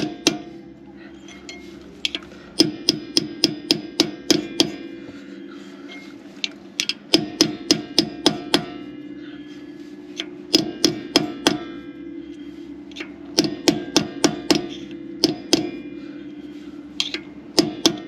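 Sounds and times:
hammer tapping steel punch: 0.0 - 0.6, 1.5 - 4.9, 6.8 - 8.8, 10.2 - 11.8, 12.9 - 15.8, 17.0 - 18.0.

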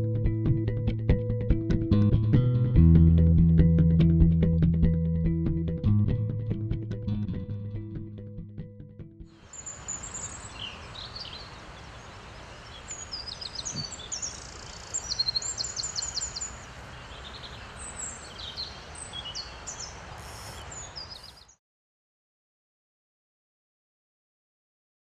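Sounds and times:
steady background hiss: 9.4 - 21.5
songbirds chirping and singing: 9.5 - 21.5.

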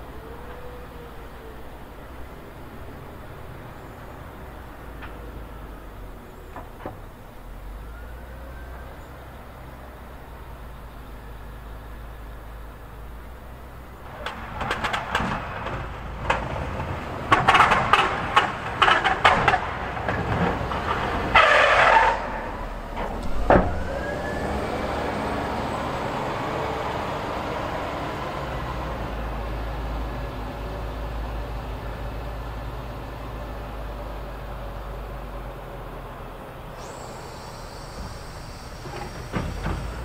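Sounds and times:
diesel engine running: 8.9 - 40.0
metal clanks and knocks: 14.1 - 21.6.

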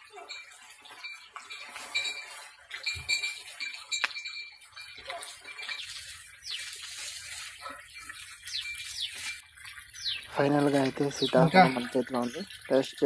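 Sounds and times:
leaves and branches rustling: 5.1 - 9.4.

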